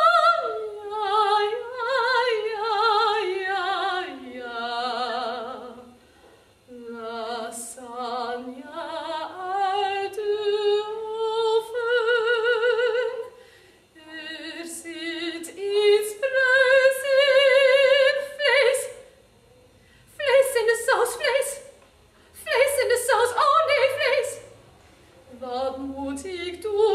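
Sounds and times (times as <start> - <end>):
woman singing operatically: 0.0 - 5.9, 6.7 - 13.3, 14.0 - 19.0, 20.1 - 21.7, 22.4 - 24.5, 25.3 - 26.9.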